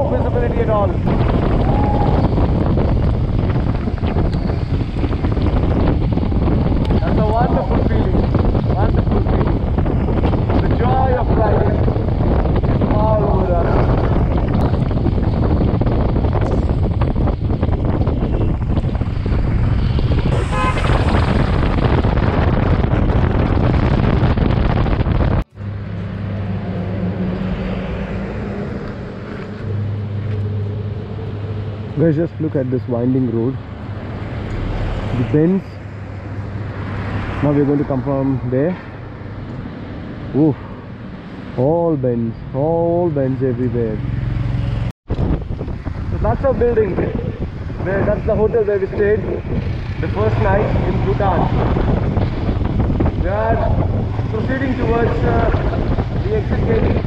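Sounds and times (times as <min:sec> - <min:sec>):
motorcycle engine: 0:00.0 - 0:32.2, 0:42.7 - 0:57.0
tyres on road: 0:00.0 - 0:57.0
wind buffeting microphone: 0:00.0 - 0:57.0.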